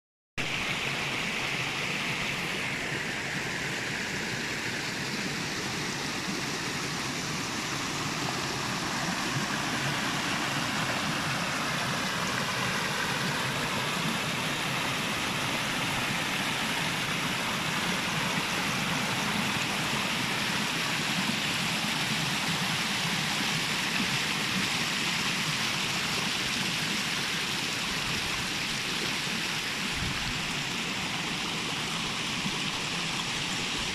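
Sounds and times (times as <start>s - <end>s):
stream splashing over rocks: 0.4s - 33.9s.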